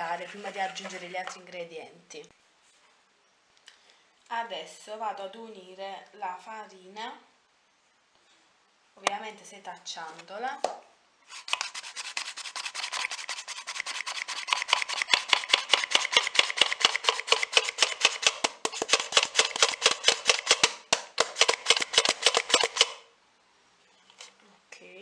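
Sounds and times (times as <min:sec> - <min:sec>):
flour sifted through sieve: 0:00.0 - 0:01.5, 0:11.2 - 0:17.8.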